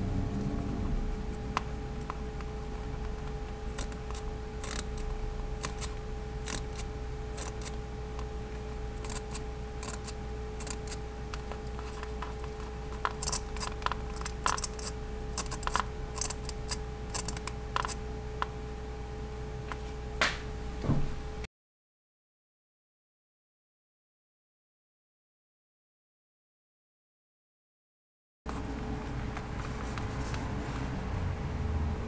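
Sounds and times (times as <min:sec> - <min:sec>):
faint hum: 0:00.0 - 0:21.5.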